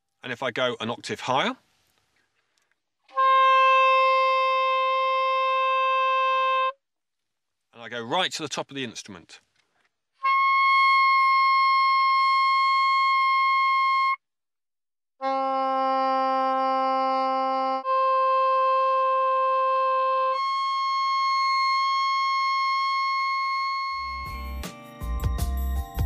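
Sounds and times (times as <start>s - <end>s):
soprano saxophone held notes: 3.1s - 6.8s, 10.2s - 14.2s, 15.2s - 24.6s.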